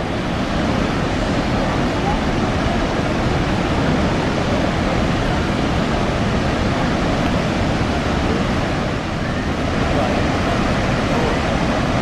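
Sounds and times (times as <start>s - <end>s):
waterfall roaring: 0.0s - 12.0s.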